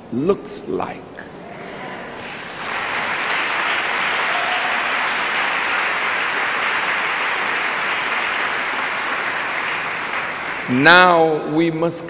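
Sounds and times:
large audience applauding: 0:02.0 - 0:11.2.

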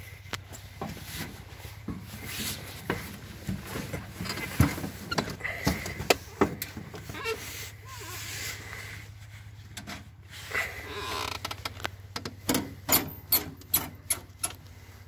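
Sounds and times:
knocks and clunks of climbing: 0:00.4 - 0:07.4, 0:11.2 - 0:14.6.

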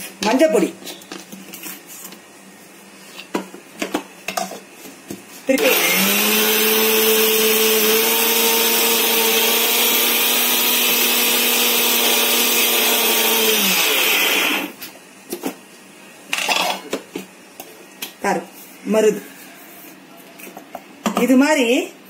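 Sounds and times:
mixer grinder motor whine: 0:05.6 - 0:14.8.

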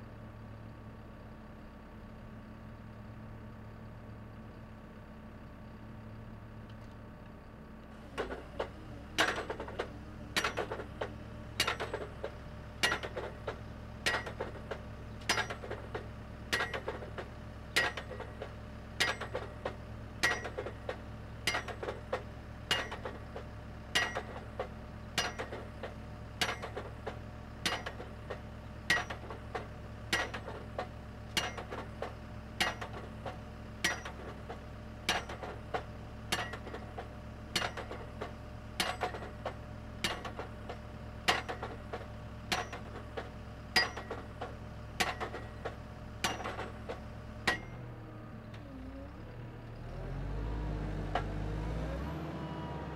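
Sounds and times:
engine humming: 0:05.7 - 0:52.9
drop hammer striking metal rods: 0:11.6 - 0:12.1, 0:12.8 - 0:13.3, 0:14.0 - 0:14.6, 0:15.2 - 0:15.8, 0:16.5 - 0:17.0, 0:17.8 - 0:18.3, 0:19.0 - 0:19.4, 0:20.2 - 0:20.8, 0:22.7 - 0:23.2, 0:24.0 - 0:24.4, 0:25.2 - 0:25.6, 0:28.9 - 0:29.2, 0:33.8 - 0:34.2, 0:36.3 - 0:36.8, 0:43.8 - 0:44.3, 0:46.2 - 0:46.8, 0:47.5 - 0:47.8.

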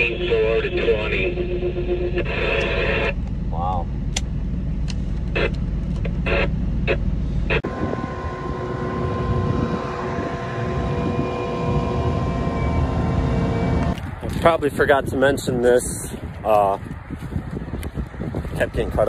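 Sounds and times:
farm machinery engine running: 0:00.0 - 0:14.6
steady engine drone: 0:00.0 - 0:19.0
steady whining tones: 0:00.0 - 0:19.0.

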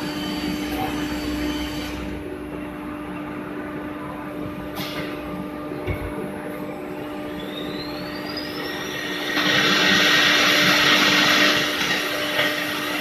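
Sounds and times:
spindle motor whine: 0:00.0 - 0:04.3, 0:05.6 - 0:13.0
cnc router machine hum: 0:00.0 - 0:13.0.

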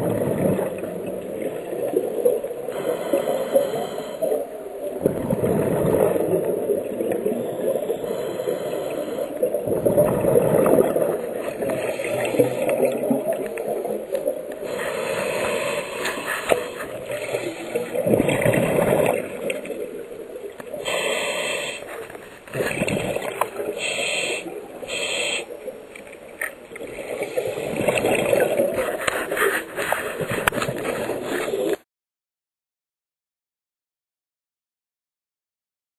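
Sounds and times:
exhaled bubbles gurgling: 0:00.0 - 0:31.8
inhaled air hissing: 0:02.8 - 0:04.4, 0:07.9 - 0:09.4, 0:14.7 - 0:17.8, 0:20.8 - 0:22.1, 0:23.6 - 0:25.6.

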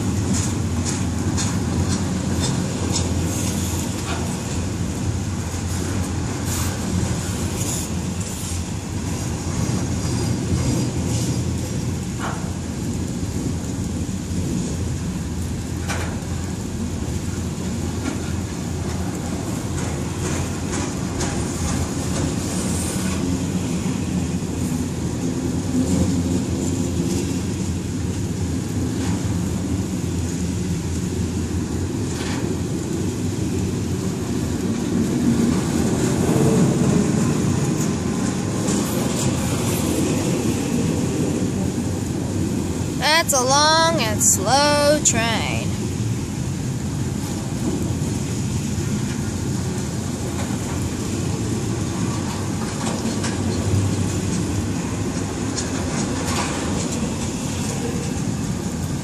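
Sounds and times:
train wheels rumbling on rails: 0:00.0 - 0:43.0, 0:46.0 - 0:59.0
wheels clacking over rail joints: 0:00.1 - 0:06.3.

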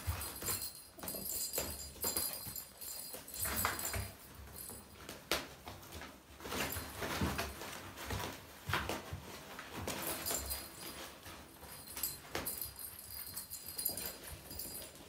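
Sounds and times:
paws and claws scrabbling: 0:00.0 - 0:15.0.

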